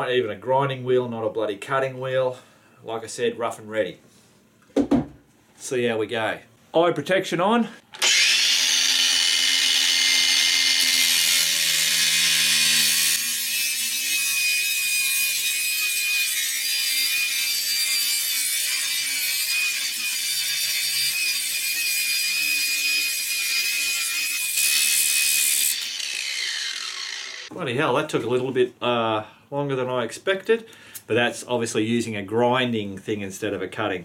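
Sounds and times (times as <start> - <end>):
grinder spinning down: 8.0 - 13.6, 20.8 - 27.5
angle grinder grinding metal: 8.0 - 27.5.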